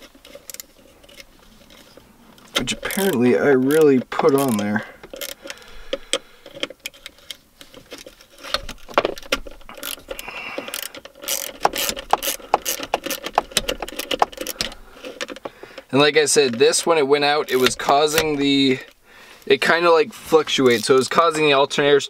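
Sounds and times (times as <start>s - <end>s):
ratchet wrench clicking: 0.2s - 1.2s, 2.8s - 7.0s, 9.7s - 15.4s.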